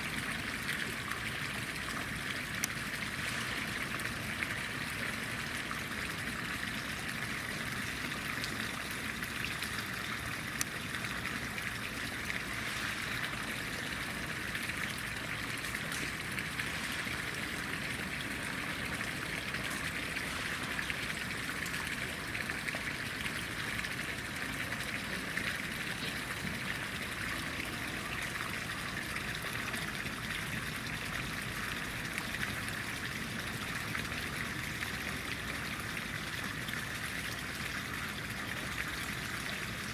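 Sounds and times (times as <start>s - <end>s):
running water: 0.0s - 39.9s.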